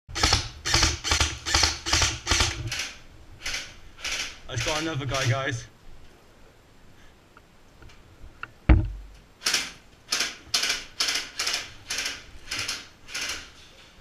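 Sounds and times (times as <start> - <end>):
airsoft rifle shots: 0.1 - 5.2
heavy thump: 8.7 - 9.2.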